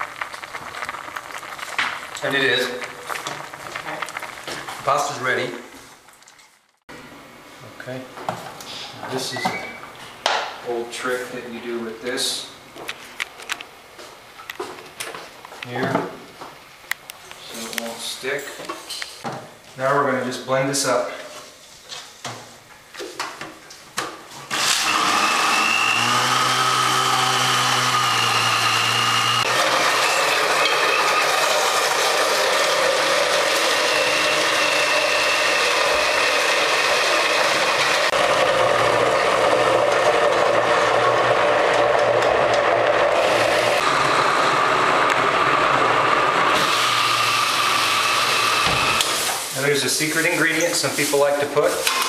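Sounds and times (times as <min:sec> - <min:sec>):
countertop blender running: 0:24.5 - 0:49.3.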